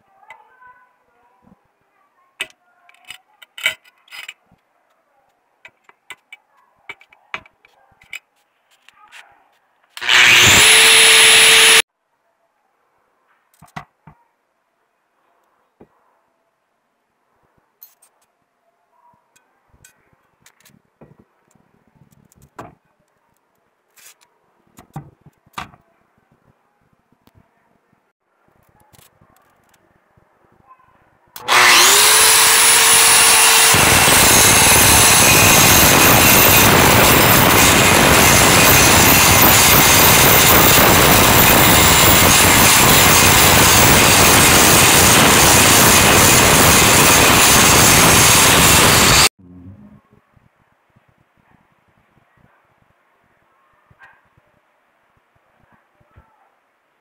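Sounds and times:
angle grinder grinding steel: 0:10.0 - 0:11.8, 0:31.4 - 0:49.3.

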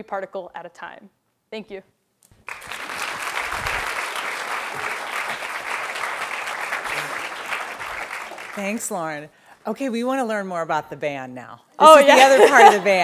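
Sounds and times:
audience applauding: 0:02.4 - 0:08.9.

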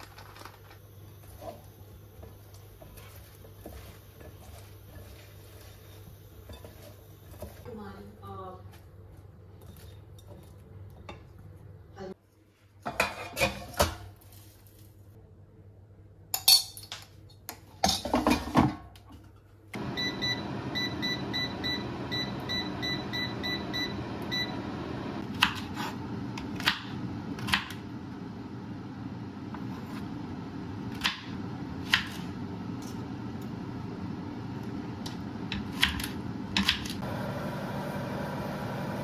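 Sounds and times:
air fryer fan whirring: 0:19.7 - 0:39.0.

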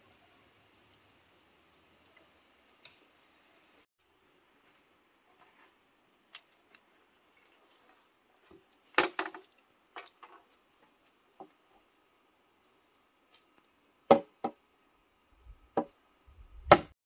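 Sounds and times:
sharp knocks: 0:14.1 - 0:14.6, 0:16.7 - 0:16.9.

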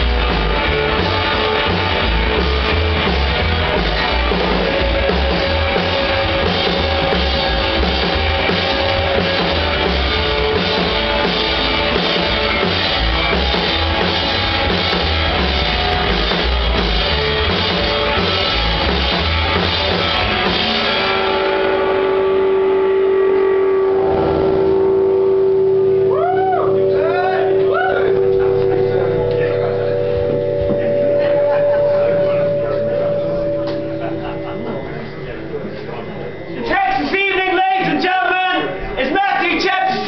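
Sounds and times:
double bass: 0:00.0 - 0:36.6
electric guitar: 0:00.0 - 0:38.0
drum kit: 0:00.0 - 0:38.2.

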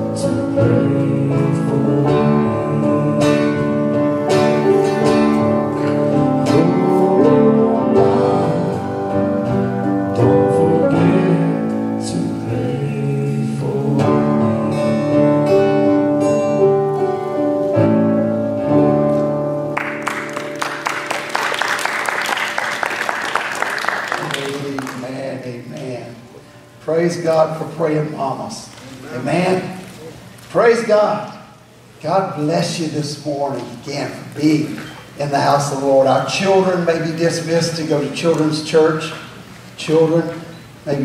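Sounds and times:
church band playing gospel song: 0:00.0 - 0:41.0
applause: 0:19.8 - 0:25.1.

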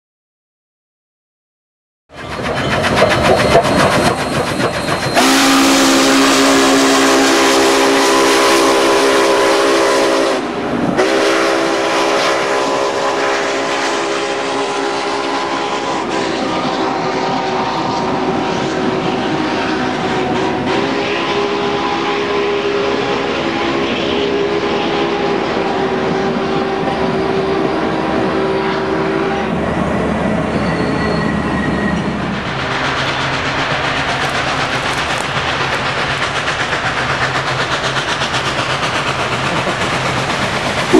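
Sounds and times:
train wheels rolling and clattering: 0:02.2 - 0:05.6, 0:29.5 - 0:40.9
steam whistle chord: 0:05.2 - 0:29.5.

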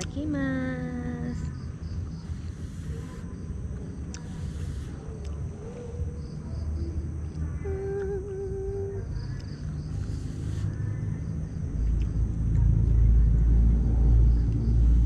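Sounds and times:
insects chirping: 0:00.0 - 0:15.0
steady low rumble: 0:00.0 - 0:15.0
person humming: 0:07.6 - 0:09.2
loud low rumble: 0:10.8 - 0:15.0.

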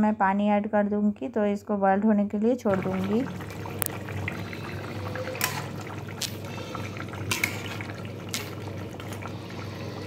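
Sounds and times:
curry bubbling in wok: 0:02.7 - 0:10.0.

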